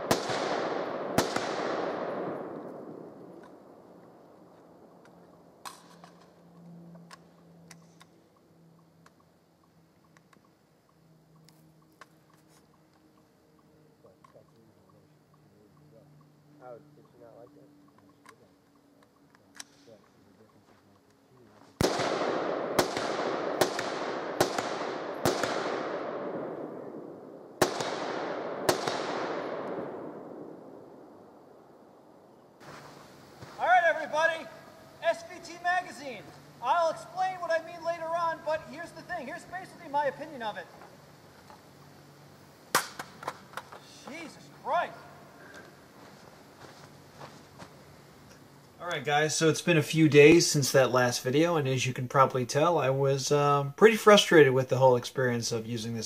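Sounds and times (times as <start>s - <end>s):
rifle shot echo: 0.0s - 4.2s, 21.8s - 32.0s, 42.7s - 43.3s
faint low hum: 0.0s - 56.0s.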